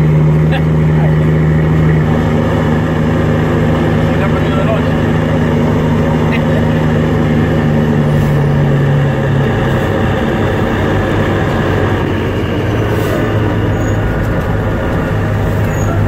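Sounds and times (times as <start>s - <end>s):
truck engine drone in cab: 0.0s - 16.0s.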